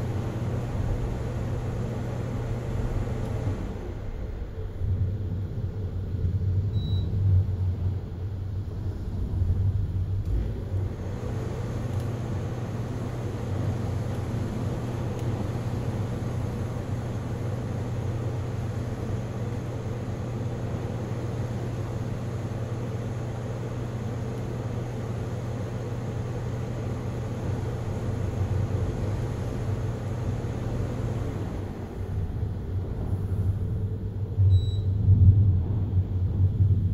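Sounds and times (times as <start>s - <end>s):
low rumble: 2.9s - 11.2s, 31.0s - 36.9s
storm wind: 31.0s - 36.9s.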